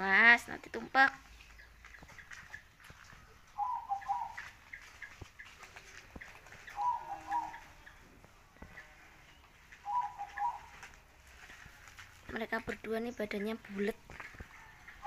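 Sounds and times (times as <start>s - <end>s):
dove cooing: 3.5s - 8.0s, 9.8s - 11.0s.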